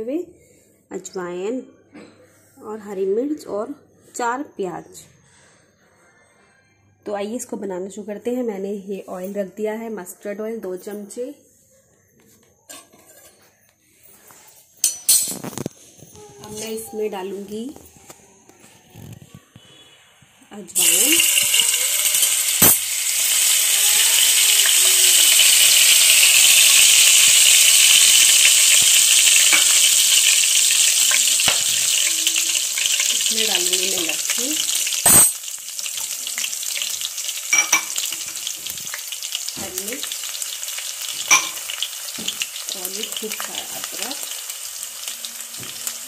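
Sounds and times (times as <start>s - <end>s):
spices sizzling in hot oil: 20.8s - 46.0s.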